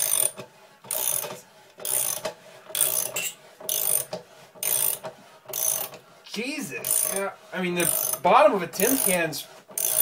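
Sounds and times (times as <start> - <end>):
ratchet wrench clicking: 0.0 - 6.0, 6.8 - 7.2, 7.8 - 8.2, 8.8 - 9.2, 9.8 - 10.0.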